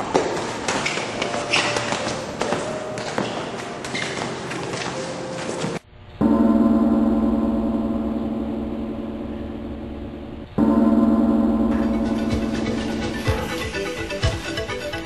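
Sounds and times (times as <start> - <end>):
scuffling: 0.0 - 5.8
gong ringing: 6.1 - 15.0.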